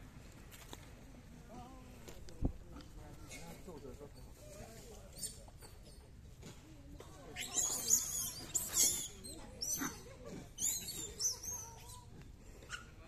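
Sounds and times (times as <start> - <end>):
squeaky animal calls: 7.4 - 12.1.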